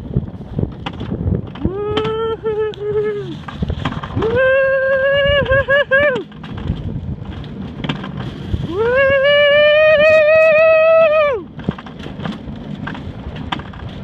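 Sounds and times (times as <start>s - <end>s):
coaster cart rumbling on track: 0.0s - 14.0s
person yelling whooo: 1.6s - 3.4s, 4.2s - 6.2s, 8.7s - 11.5s.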